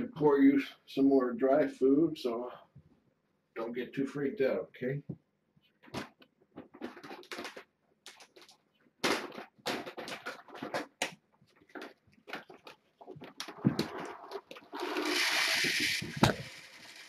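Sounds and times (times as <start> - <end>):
kibble bag rustling and rattling: 6.7 - 11.0.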